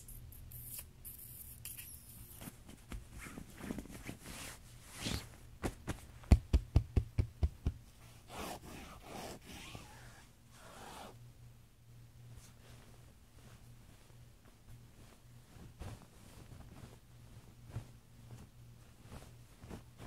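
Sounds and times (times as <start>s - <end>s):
faint rustling: 12.2s - 20.0s.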